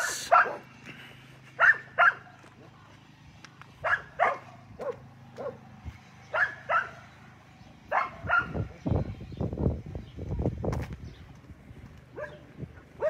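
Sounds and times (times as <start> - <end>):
dog barking: 0.1 - 0.7, 1.6 - 2.3, 3.8 - 5.6, 6.3 - 7.0, 7.9 - 8.7, 12.1 - 13.0.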